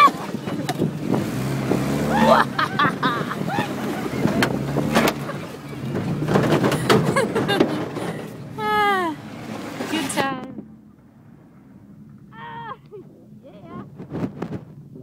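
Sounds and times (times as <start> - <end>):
car engine running: 0.0 - 15.0.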